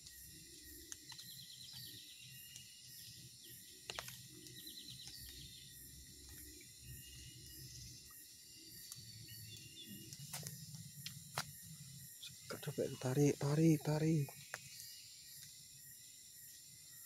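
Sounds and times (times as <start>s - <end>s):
high insect drone: 0.0s - 17.0s
rapid chirping trills: 0.0s - 17.0s.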